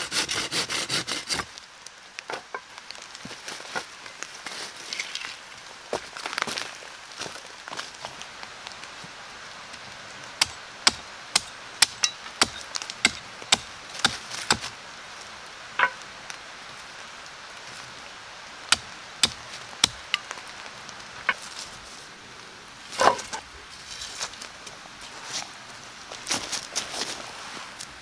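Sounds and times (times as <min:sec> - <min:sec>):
blade chopping wood: 0:10.4 - 0:14.7, 0:18.7 - 0:20.2.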